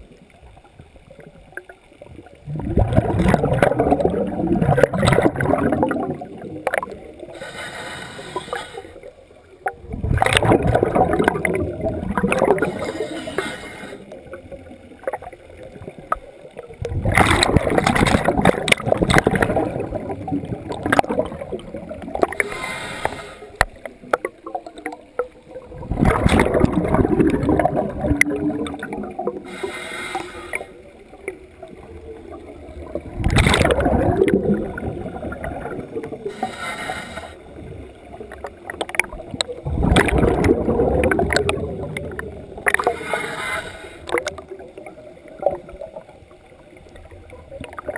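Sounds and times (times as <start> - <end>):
exhaled bubbles gurgling: 0.0 - 47.9
regulator inhalation hiss: 7.3 - 9.1, 12.7 - 14.1, 22.4 - 23.6, 29.4 - 30.9, 36.2 - 37.6, 42.8 - 44.2.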